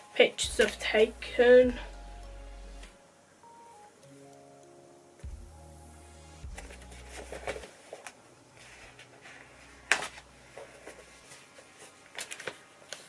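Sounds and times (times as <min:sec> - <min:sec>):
pages turning and rustling: 0:06.5 - 0:13.0.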